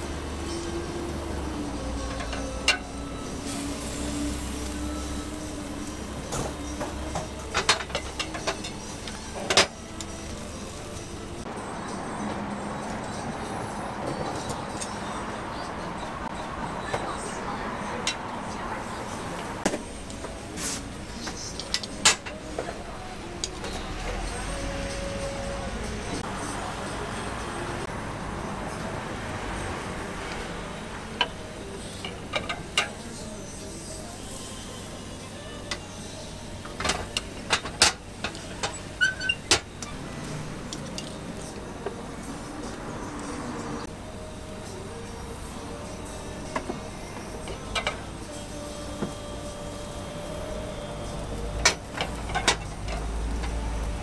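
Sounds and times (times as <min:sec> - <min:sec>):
steady background noise: 0:00.0 - 0:54.0
cast-iron molds clanking: 0:06.2 - 0:09.8, 0:36.6 - 0:40.0, 0:51.5 - 0:53.6.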